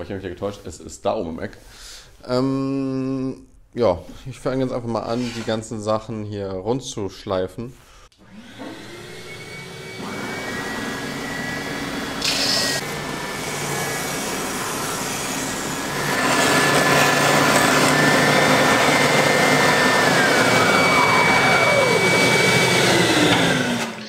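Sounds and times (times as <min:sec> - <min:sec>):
dust extractor running: 0:08.2 - 0:24.0
sander motor whine: 0:08.2 - 0:24.0.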